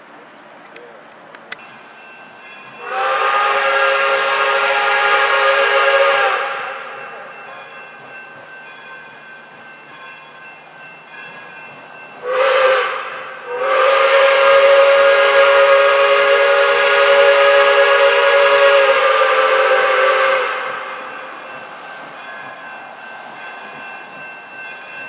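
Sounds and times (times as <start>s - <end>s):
steam locomotive whistle: 2.6s - 7.8s, 12.2s - 22.6s.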